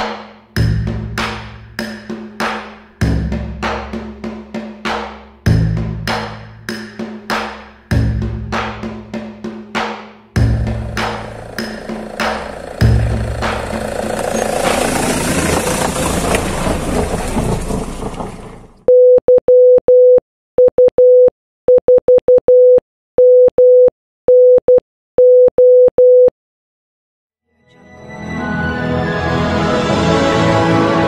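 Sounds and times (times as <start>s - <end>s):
rushing noise: 10.5s - 18.8s
morse code beeps: 18.9s - 26.3s.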